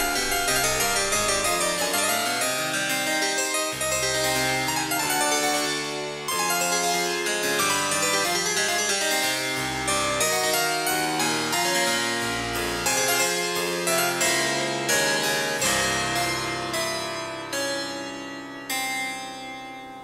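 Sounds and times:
low bass notes: 0:00.0 - 0:01.9
bright keyboard melody: 0:00.0 - 0:04.0.

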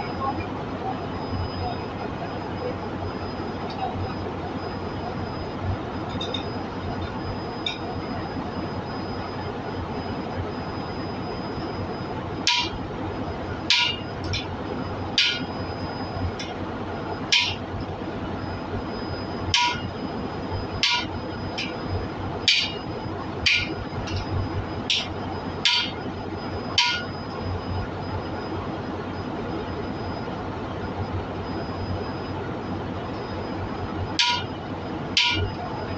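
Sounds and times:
steady background hum: 0:00.0 - 0:35.9
hammer striking metal: 0:12.5 - 0:12.8, 0:13.7 - 0:14.5, 0:15.2 - 0:15.5, 0:17.3 - 0:17.6, 0:19.6 - 0:19.9, 0:20.8 - 0:21.8, 0:22.5 - 0:22.8, 0:23.5 - 0:24.3, 0:24.9 - 0:26.0, 0:26.8 - 0:27.1, 0:34.2 - 0:34.5, 0:35.2 - 0:35.5.

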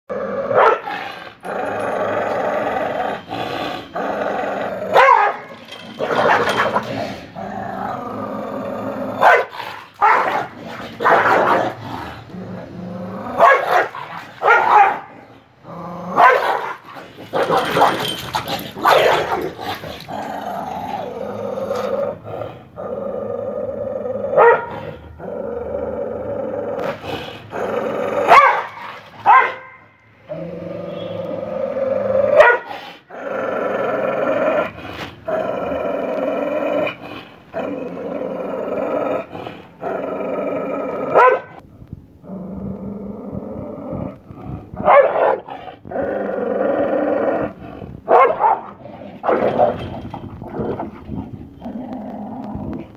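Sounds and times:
dog growling: 0:00.1 - 0:28.4, 0:30.2 - 0:41.3, 0:42.2 - 0:52.9
dog barking: 0:00.6 - 0:00.9, 0:05.0 - 0:05.5, 0:09.2 - 0:11.6, 0:13.4 - 0:15.1, 0:16.2 - 0:16.8, 0:24.4 - 0:24.7, 0:28.3 - 0:29.8, 0:32.4 - 0:32.7, 0:41.2 - 0:41.6, 0:44.8 - 0:45.4, 0:48.1 - 0:48.7.

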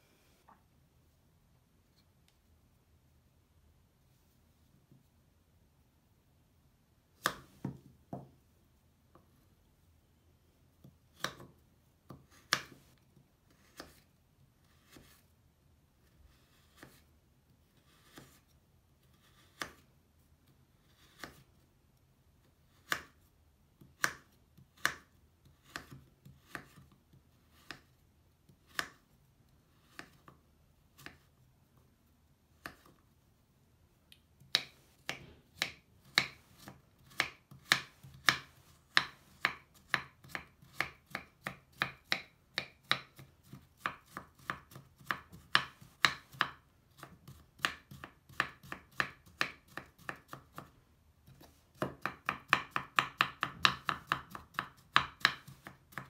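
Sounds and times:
knife chopping on wooden board: 0:07.2 - 0:08.3, 0:23.8 - 0:26.9, 0:34.4 - 0:50.7, 0:51.7 - 0:56.0.

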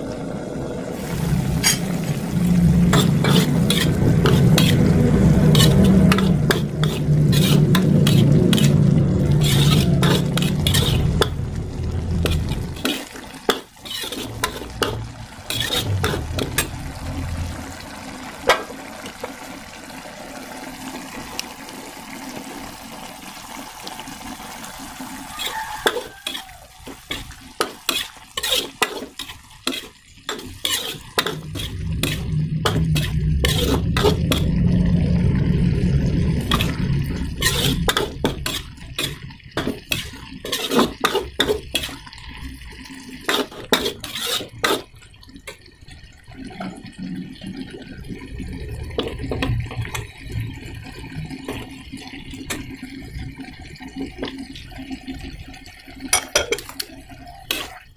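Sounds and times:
food sizzling: 0:00.0 - 0:57.9
low rumble: 0:00.2 - 0:12.8, 0:14.2 - 0:18.4, 0:31.4 - 0:38.5
metal spatula scraping a wok: 0:01.6 - 0:01.9, 0:02.8 - 0:11.4, 0:12.2 - 0:16.7, 0:25.4 - 0:34.6, 0:36.4 - 0:42.0, 0:43.2 - 0:44.9.

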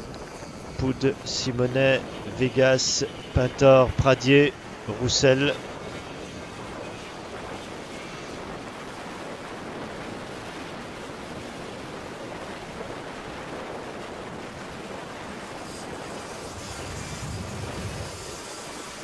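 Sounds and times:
wind on microphone: 0:00.0 - 0:19.0.

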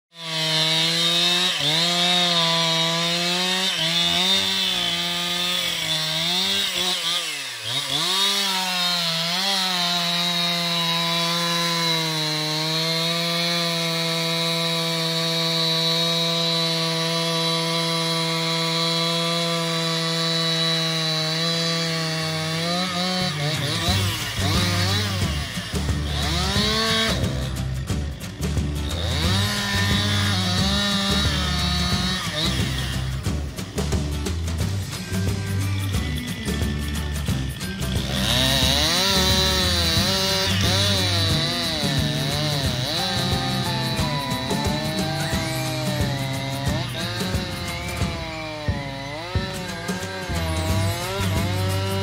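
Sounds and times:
chainsaw cutting wood: 0:00.1 - 0:52.0.

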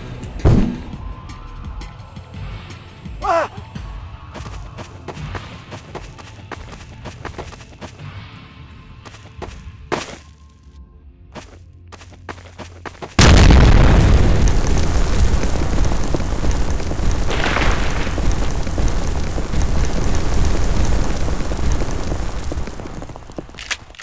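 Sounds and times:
explosion blast and rumble: 0:13.2 - 0:24.0.

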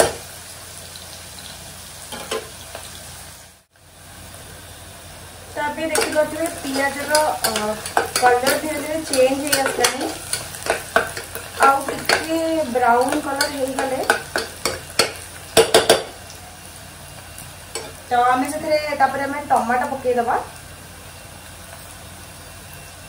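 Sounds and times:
food sizzling: 0:00.0 - 0:23.0
spatula scraping a metal pot: 0:06.0 - 0:15.2.

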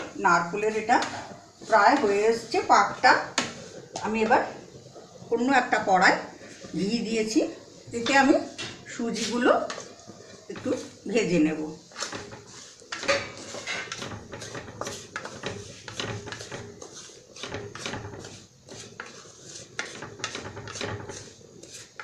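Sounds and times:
utensil scraping a frying pan: 0:06.1 - 0:22.0.

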